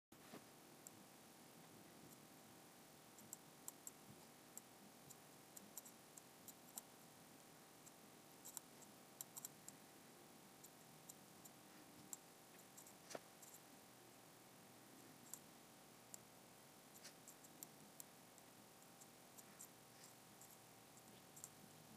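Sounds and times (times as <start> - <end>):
computer mouse clicks: 3.2 - 4.0, 4.6 - 6.9, 7.8 - 9.8, 15.2 - 15.4, 17.0 - 21.6.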